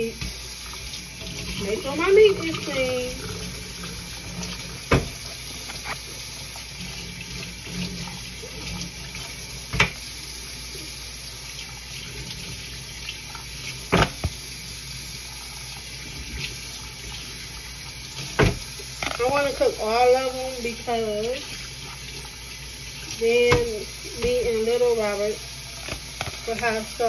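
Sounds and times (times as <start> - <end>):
tap running into sink: 4.3 - 6.1, 8.7 - 10.0, 13.3 - 14.4, 18.2 - 19.6, 23.4 - 24.7, 25.8 - 26.8.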